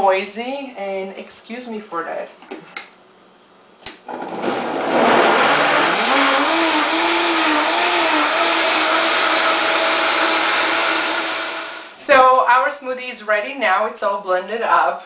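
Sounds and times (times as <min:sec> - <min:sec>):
blender motor running: 0:04.1 - 0:12.0.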